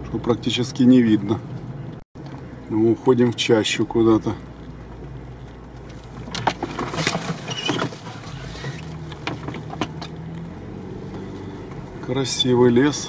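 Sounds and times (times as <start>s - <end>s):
low engine hum: 0.0s - 13.0s
suspension knocks and rattles: 4.9s - 10.3s.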